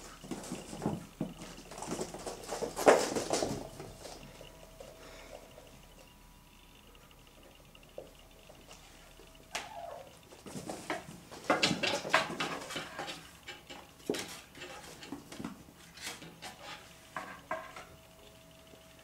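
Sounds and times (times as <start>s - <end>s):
kitten clattering taps and scratches: 10.5s - 17.9s.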